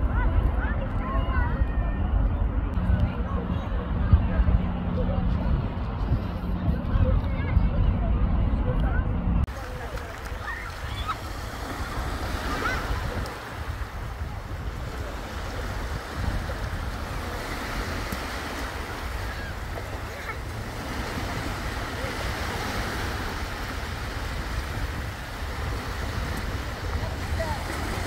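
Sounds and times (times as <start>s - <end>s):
wind rumbling on microphone: 0.0s - 28.0s
small waves breaking on shore: 9.5s - 28.0s.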